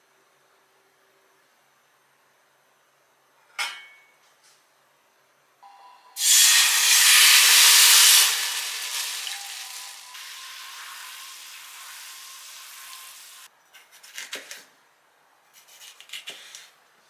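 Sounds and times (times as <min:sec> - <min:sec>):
food sizzling in hot pan: 0:06.2 - 0:13.5.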